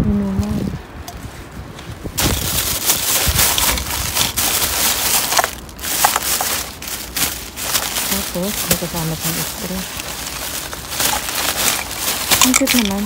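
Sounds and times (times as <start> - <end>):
plastic bags crinkling: 2.2 - 13.0.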